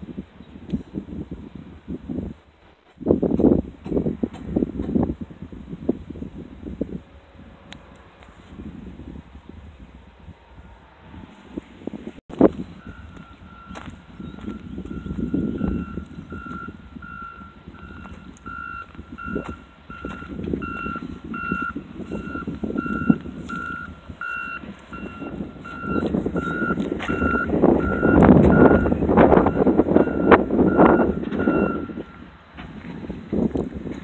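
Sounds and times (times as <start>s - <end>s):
backup alarm beeping: 12.7s - 32.3s.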